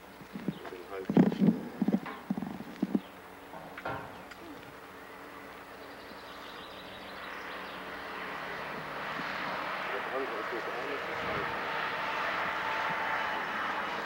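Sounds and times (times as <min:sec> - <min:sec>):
steady engine-like drone: 0:00.0 - 0:14.0.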